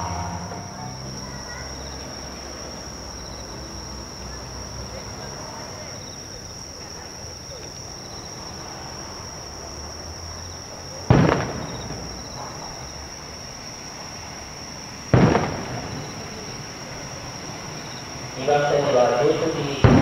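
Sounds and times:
distant firework shells bursting: 11.1s - 12.8s, 15.1s - 16.4s, 19.6s - 20.0s.

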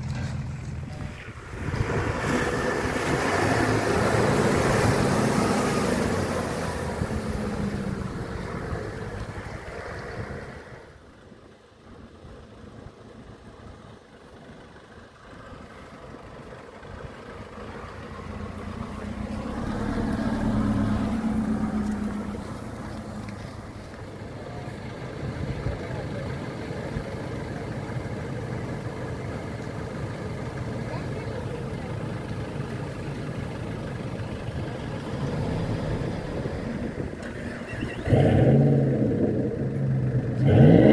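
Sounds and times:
vehicle driving close past: 0.0s - 10.9s, 17.3s - 24.2s, 30.9s - 40.9s
off-road engines running: 0.0s - 40.9s
people talking: 24.1s - 33.3s, 34.2s - 38.3s.

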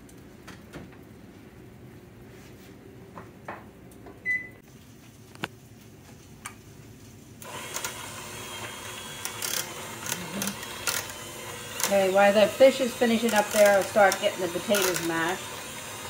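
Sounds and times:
electric hand mixer running: 7.4s - 16.0s.

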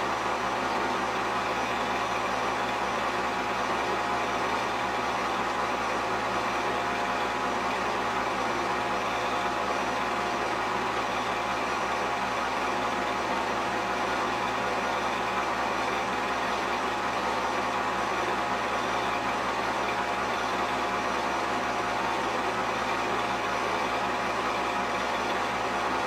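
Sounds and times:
film projector whirring: 0.0s - 26.0s.

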